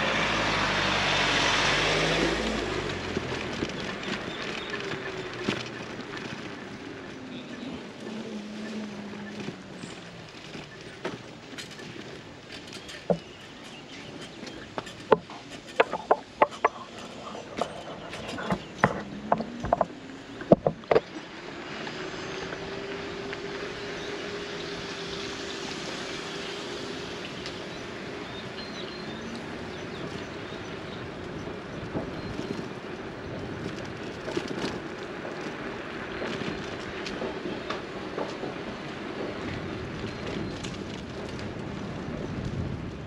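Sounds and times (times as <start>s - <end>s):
small vehicle engine: 0.0s - 43.0s
sharp irregular clicks and knocks: 12.6s - 21.1s.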